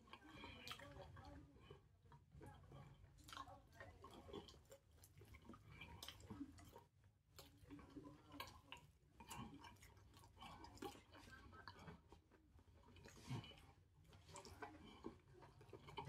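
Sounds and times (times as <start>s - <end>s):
eating with small clicks: 0.0s - 16.0s.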